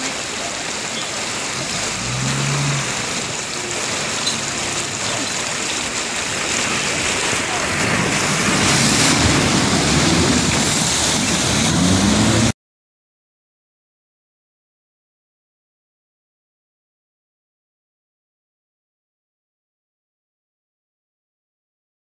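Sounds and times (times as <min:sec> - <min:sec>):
shallow river running: 0:00.0 - 0:12.5
water splashing: 0:00.0 - 0:12.5
vehicle engine: 0:00.8 - 0:12.5.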